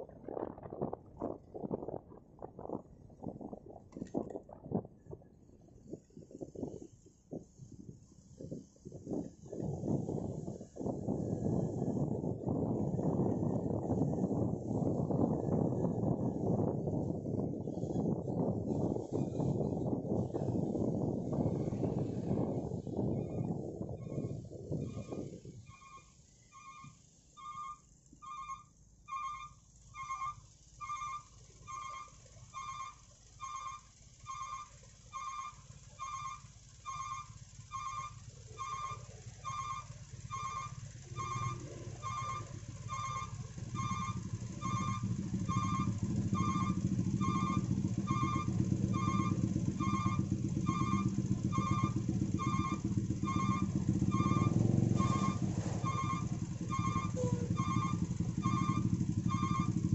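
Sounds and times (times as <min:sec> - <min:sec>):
heavy engines idling in traffic: 0:02.0 - 0:59.9
high electronic beeper: 0:26.6 - 0:59.8.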